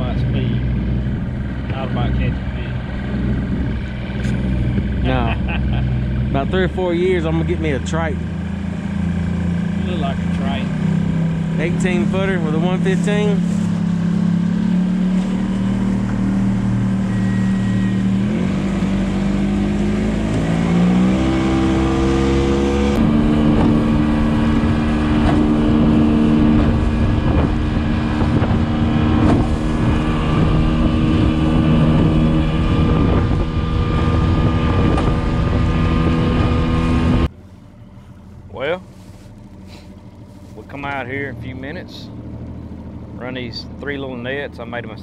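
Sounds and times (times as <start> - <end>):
outboard motor speeding up: 0.0 - 45.0
wind noise: 0.6 - 5.6, 15.1 - 37.3.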